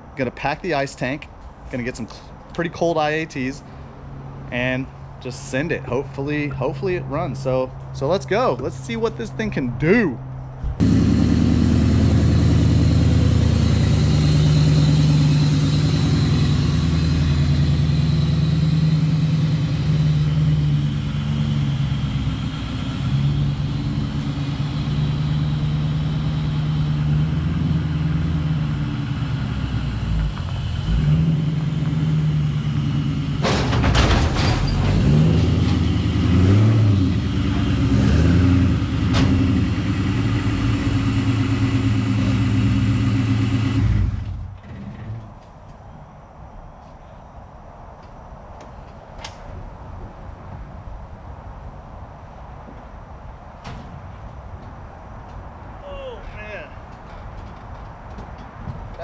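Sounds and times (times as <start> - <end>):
car engine running: 10.6 - 34.0
engine throttle blips: 10.6 - 45.2
knocks and clanks on ramps: 33.3 - 36.1, 39.0 - 39.7, 53.6 - 54.7, 56.9 - 59.0.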